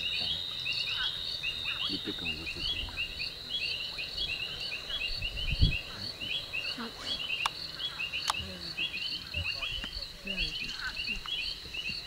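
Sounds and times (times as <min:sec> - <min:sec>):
insects and frogs chirping: 0:00.0 - 0:12.0.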